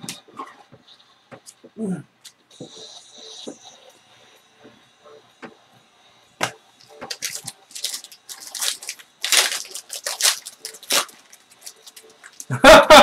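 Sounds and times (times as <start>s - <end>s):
foil wrapper tearing: 7.0s - 12.6s.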